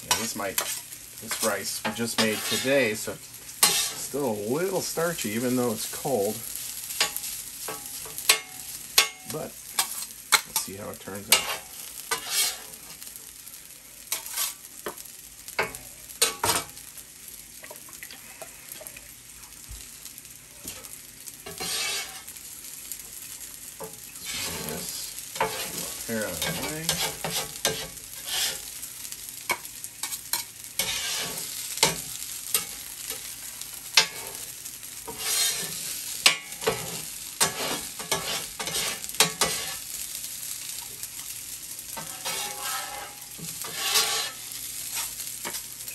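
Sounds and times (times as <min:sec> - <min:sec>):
metal spatula scraping griddle: 0:00.0 - 0:12.8, 0:14.1 - 0:14.7, 0:20.7 - 0:22.4, 0:23.8 - 0:28.8, 0:29.5 - 0:33.3, 0:33.9 - 0:40.0, 0:41.9 - 0:45.7
steady sizzle: 0:00.0 - 0:45.9.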